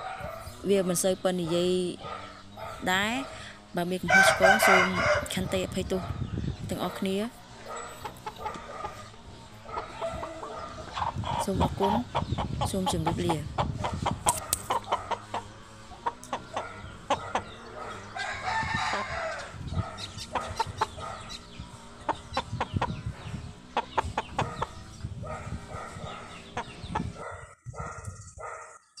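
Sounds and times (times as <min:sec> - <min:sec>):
dog barking: 0:00.0 - 0:00.7, 0:01.4 - 0:03.5, 0:04.4 - 0:06.3, 0:06.9 - 0:11.0, 0:14.4 - 0:15.4, 0:16.4 - 0:18.2, 0:19.3 - 0:21.4, 0:24.4 - 0:26.6, 0:27.2 - 0:28.8
chickens clucking: 0:00.0 - 0:28.6
rooster crowing: 0:04.0 - 0:05.4, 0:07.7 - 0:11.3, 0:16.3 - 0:21.3.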